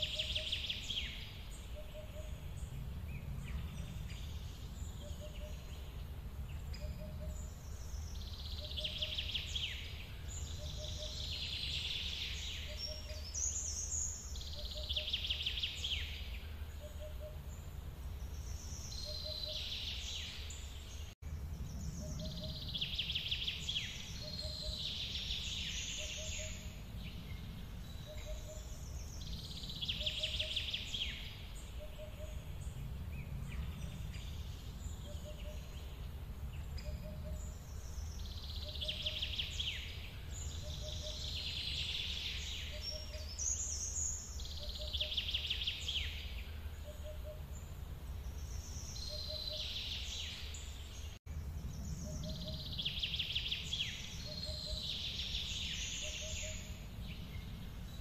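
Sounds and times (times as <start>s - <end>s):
songbirds singing: 0.0s - 58.0s
steady low rumble: 1.4s - 8.5s, 21.0s - 38.6s.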